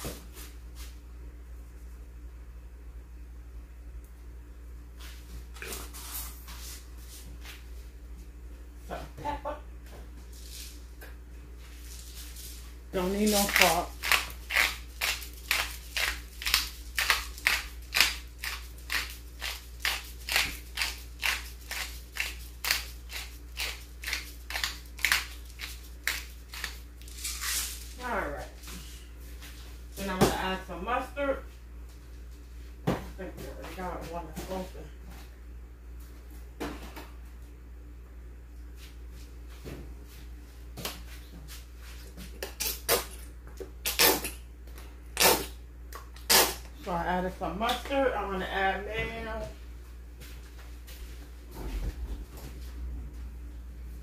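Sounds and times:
spice grinder grinding: 0:13.5 - 0:27.8.

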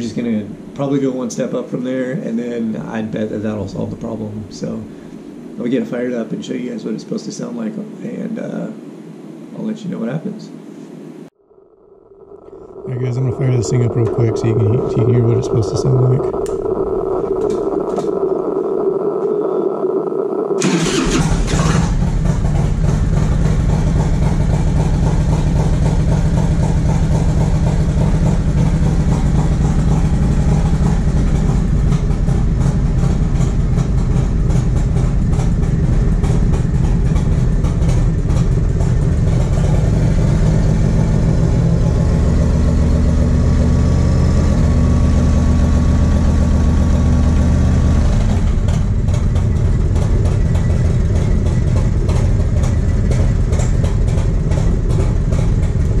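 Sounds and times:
motorcycle engine idling and revving: 0:11.4 - 0:56.0.

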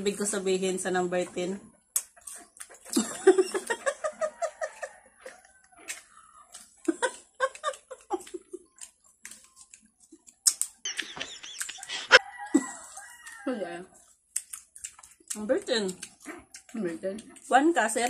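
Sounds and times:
crisp chewing of fruit: 0:01.7 - 0:18.0
women laughing: 0:02.9 - 0:05.4, 0:06.8 - 0:08.7, 0:10.9 - 0:12.9.

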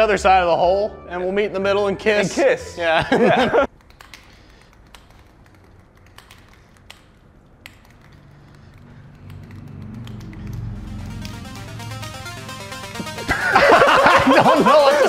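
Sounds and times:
low background music: 0:00.0 - 0:03.7, 0:09.2 - 0:15.0.

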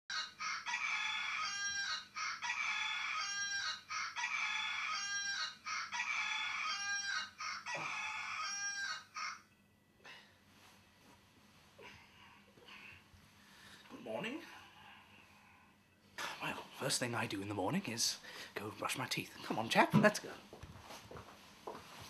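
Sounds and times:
rooster crowing: 0:00.1 - 0:09.4.

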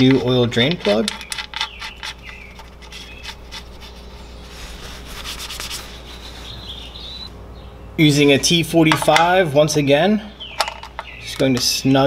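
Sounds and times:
metallic clicks and scraping: 0:00.0 - 0:04.0
steady low hum: 0:00.0 - 0:12.0.

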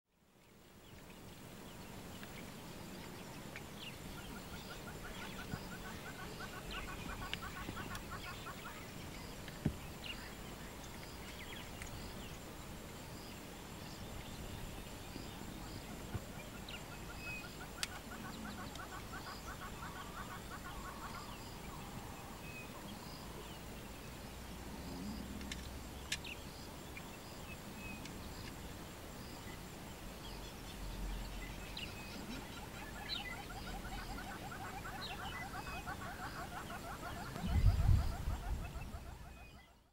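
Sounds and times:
low hooting bird calls: 0:03.9 - 0:09.2, 0:15.5 - 0:23.4, 0:31.6 - 0:39.9
faint high ticks: 0:17.8 - 0:19.1, 0:25.0 - 0:26.4.

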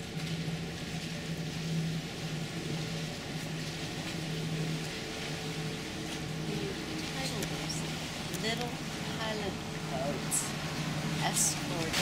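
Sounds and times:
constant hiss: 0:00.0 - 0:12.0
low hum of ship machinery: 0:00.0 - 0:12.0.

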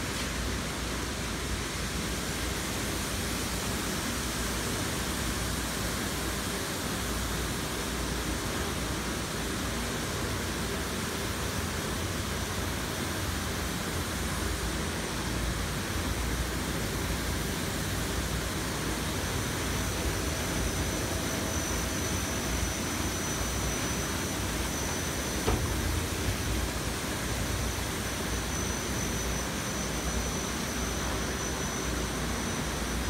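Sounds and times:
faint high whine: 0:02.4 - 0:33.0
machinery whir: 0:18.8 - 0:33.0.

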